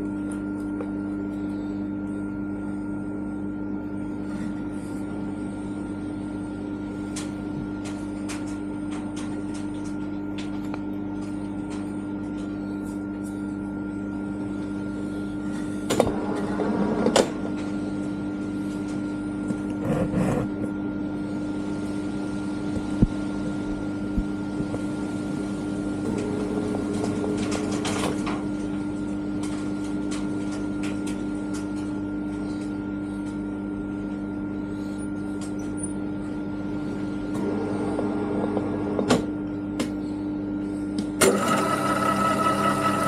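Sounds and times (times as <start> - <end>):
metal lathe humming: 41.2 - 43.0.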